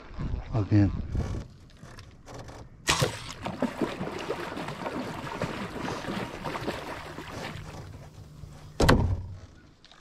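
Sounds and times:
water splashing: 2.9 - 8.2.

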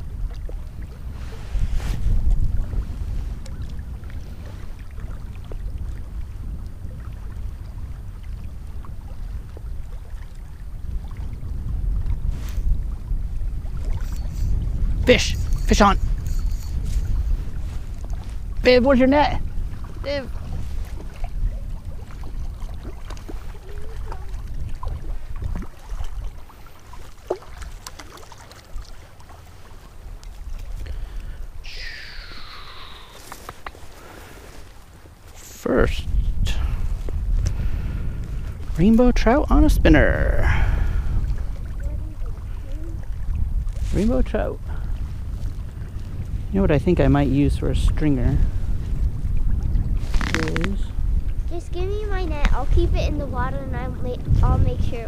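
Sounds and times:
wind buffeting microphone: 0.0 - 55.0
fishing reel clicking: 14.0 - 17.2.

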